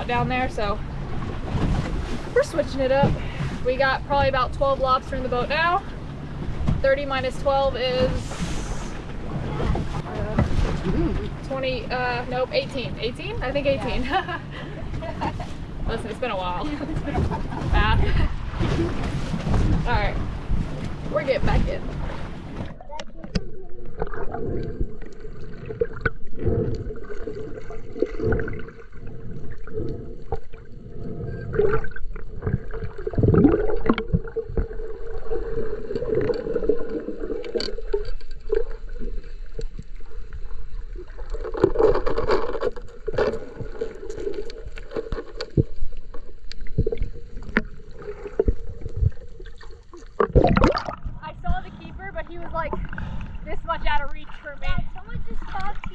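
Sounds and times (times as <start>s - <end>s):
water gurgling underwater: 17.2s - 55.9s.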